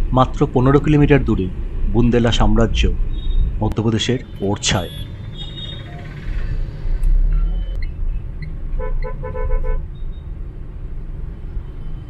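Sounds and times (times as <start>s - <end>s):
car engine and road rumble: 0.0s - 12.0s
vehicle horn short beeps: 4.7s - 6.2s.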